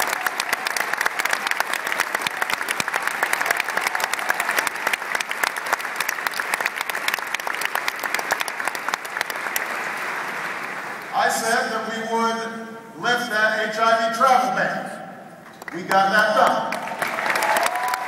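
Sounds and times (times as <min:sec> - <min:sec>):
audience applauding: 0:00.0 - 0:11.5, 0:15.6 - 0:18.0.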